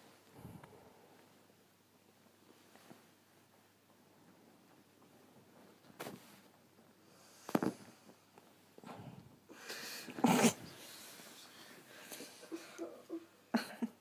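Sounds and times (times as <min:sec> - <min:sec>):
bedding rustling: 0:02.0 - 0:08.7.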